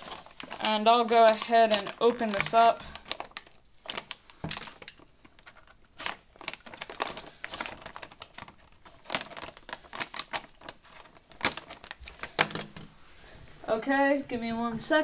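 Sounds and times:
plastic bag crinkling: 0.0s - 13.4s.

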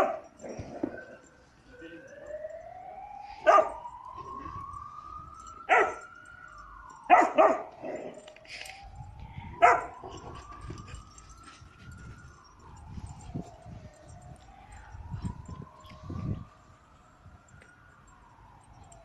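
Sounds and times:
siren wailing: 0.0s - 19.0s
dog barking: 3.4s - 3.7s, 5.7s - 6.0s, 7.1s - 8.0s, 9.6s - 10.0s.

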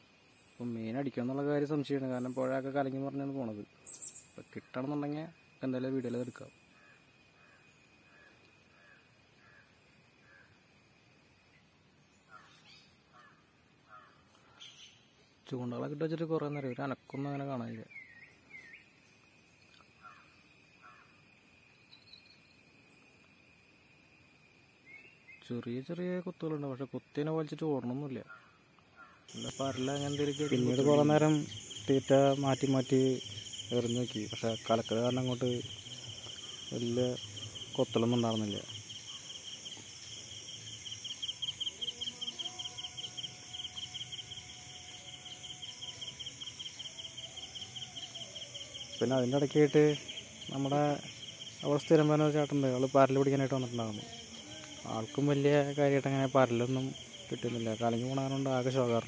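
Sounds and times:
high-pitched insect drone: 0.0s - 11.6s, 29.3s - 59.0s.

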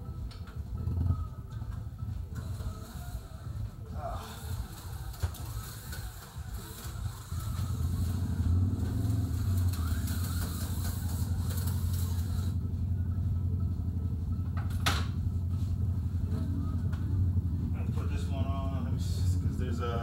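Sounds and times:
small electric motor humming: 2.4s - 12.7s.

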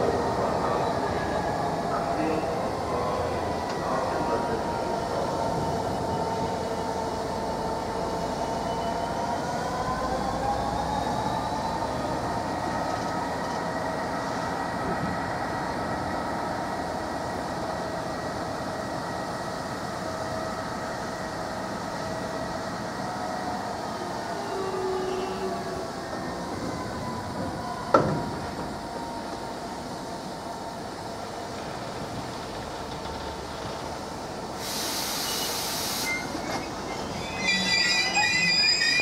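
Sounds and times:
freight train wheels rumbling: 0.0s - 39.0s
thin high ringing tones: 36.1s - 39.0s.

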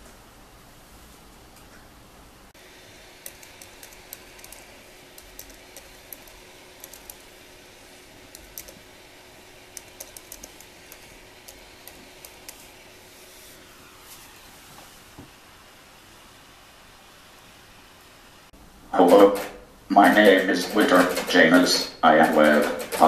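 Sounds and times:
faint steady hum: 0.0s - 23.0s
computer keyboard typing: 3.2s - 7.4s, 8.1s - 8.9s, 9.7s - 12.7s, 19.1s - 23.0s.

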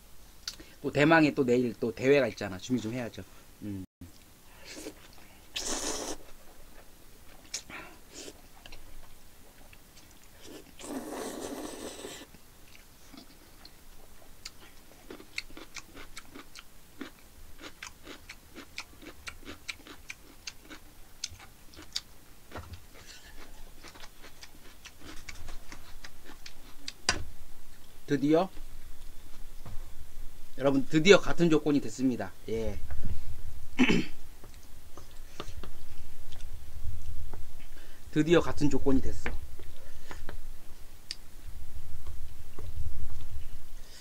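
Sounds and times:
chewing with sharp clicks: 0.4s - 0.6s, 7.3s - 7.7s, 12.6s - 22.1s, 22.9s - 27.0s
person slurping noodles: 5.6s - 6.2s, 10.4s - 12.3s.

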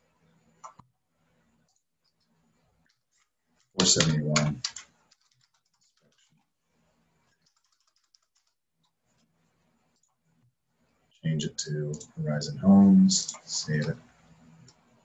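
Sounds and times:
typing on computer keyboard: 3.8s - 6.4s, 7.3s - 8.6s.

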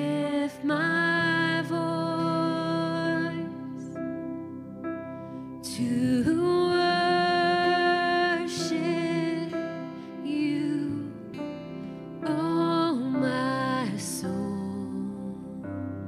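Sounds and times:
acoustic guitar: 0.0s - 16.0s
keyboard: 0.0s - 16.0s
singer breathing: 5.1s - 5.6s.

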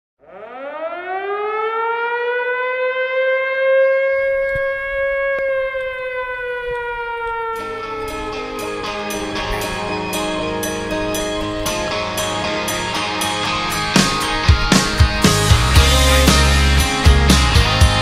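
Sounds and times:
siren winding up and down: 0.2s - 10.4s
music with drums: 13.0s - 18.0s.

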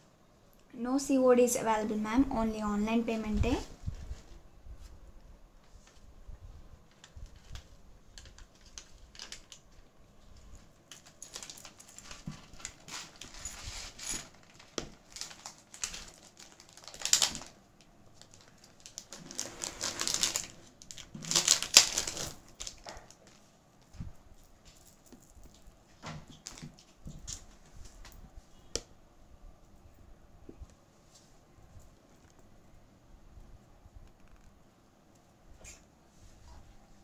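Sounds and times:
crinkly rustling: 3.0s - 28.6s.

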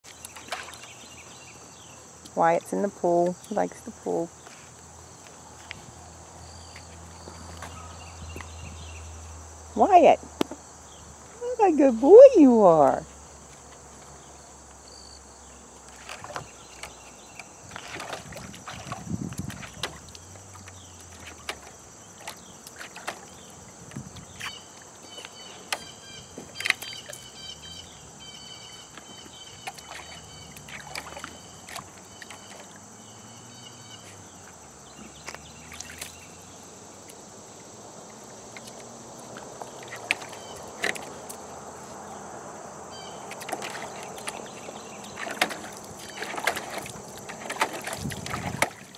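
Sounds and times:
puppies splashing in water: 0.0s - 1.1s, 15.8s - 33.5s, 34.4s - 36.5s, 38.2s - 41.6s, 43.0s - 48.9s
high insect drone: 0.1s - 48.9s.

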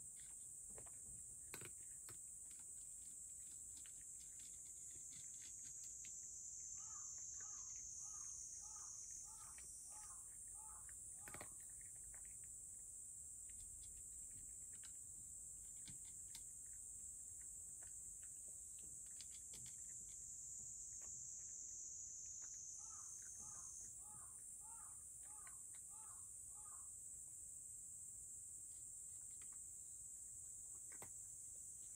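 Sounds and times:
cat eating from a dish: 0.0s - 26.1s, 28.9s - 31.9s.

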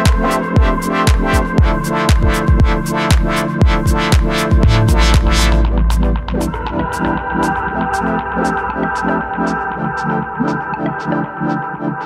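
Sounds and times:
deep bass drum beat: 0.1s - 7.8s
held synth chords: 2.6s - 12.0s.

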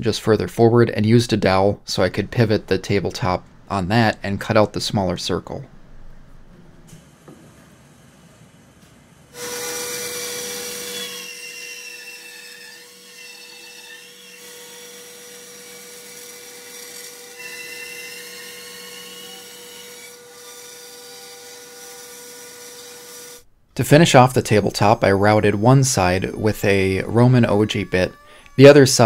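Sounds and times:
band saw cutting wood: 9.4s - 23.4s, 24.1s - 29.0s
band saw motor hum: 24.4s - 29.0s.

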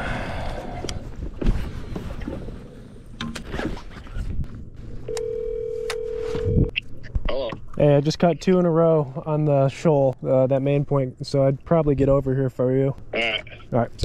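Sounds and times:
phone ringback tone: 5.1s - 6.7s.

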